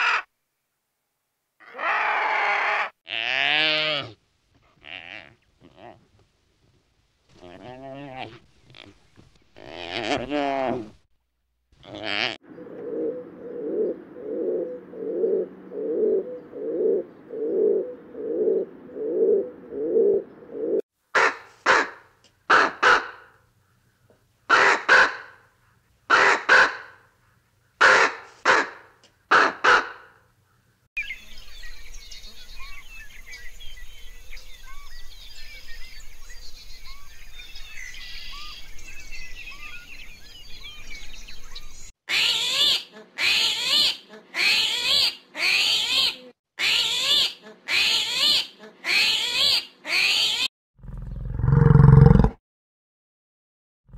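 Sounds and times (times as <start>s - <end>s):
crow cawing: 0.0s - 0.3s
low pulsing animal calls: 11.8s - 20.8s
small birds chirping: 30.5s - 41.9s.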